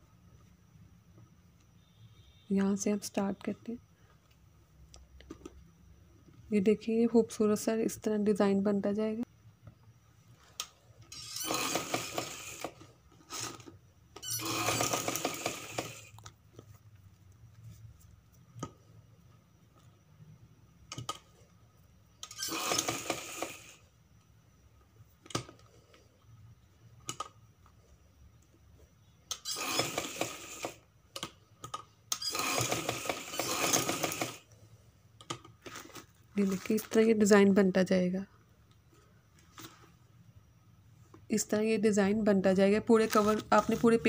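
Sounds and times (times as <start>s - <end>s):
sewing machine stitching: 11.1s - 16.2s, 22.2s - 23.8s, 29.3s - 30.8s, 32.1s - 34.5s, 43.0s - 44.0s.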